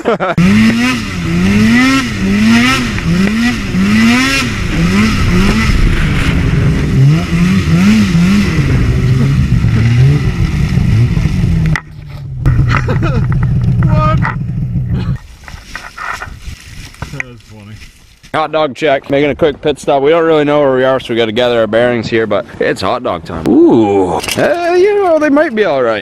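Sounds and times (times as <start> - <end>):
snowmobile engine revving: 0.1 - 11.8.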